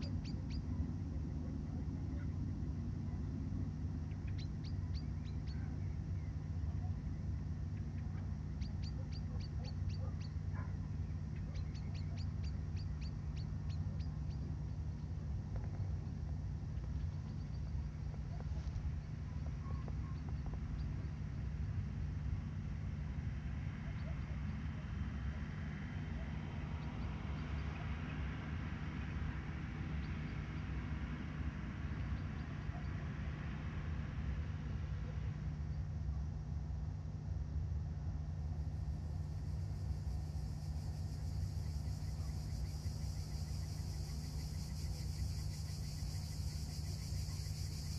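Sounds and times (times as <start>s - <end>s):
bird chirping: 0.0s - 0.8s, 4.1s - 7.2s, 7.8s - 15.2s
steady low rumble: 0.0s - 47.9s.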